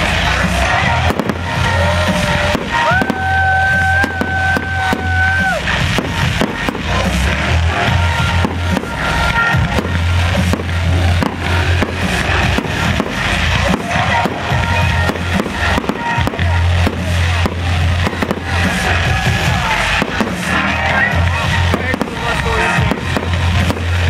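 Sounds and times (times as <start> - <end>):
fireworks bursting and crackling: 0.0 - 24.0
loud music with heavy bass: 0.0 - 24.0.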